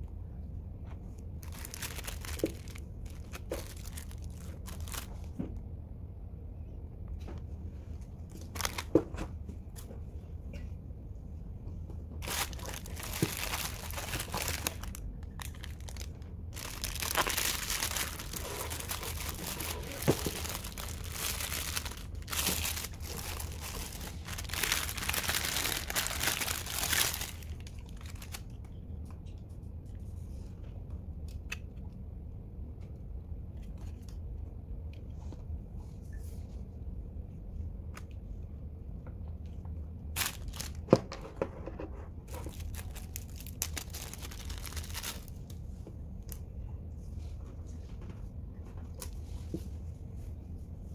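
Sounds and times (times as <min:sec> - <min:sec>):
plastic bags crinkling: 0:01.4 - 0:05.3, 0:08.4 - 0:09.0, 0:12.2 - 0:28.4, 0:40.2 - 0:40.9, 0:42.3 - 0:45.4.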